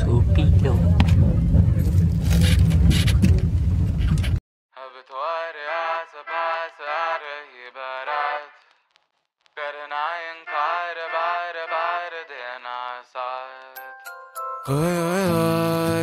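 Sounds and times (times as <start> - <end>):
solo sung melody: 9.6 - 16.0.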